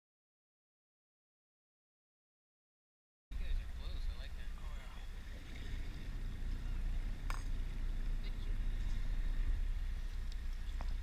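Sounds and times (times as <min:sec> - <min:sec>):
boat engine idling: 0:03.4 - 0:11.0.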